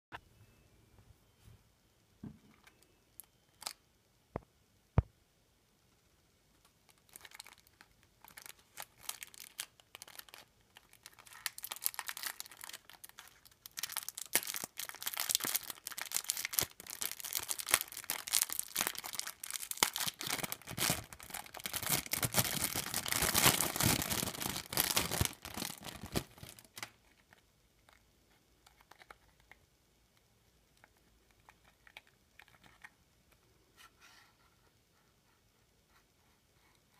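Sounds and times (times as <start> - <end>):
cellophane wrapper crinkling: 6.9 - 28.0, 28.6 - 29.6.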